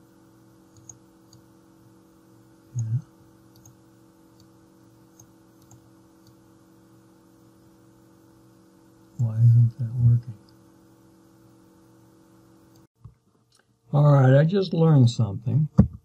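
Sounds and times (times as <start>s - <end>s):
low electrical hum: 0.0s - 16.0s
computer mouse clicks: 0.7s - 1.5s, 2.8s - 4.5s, 5.1s - 6.4s.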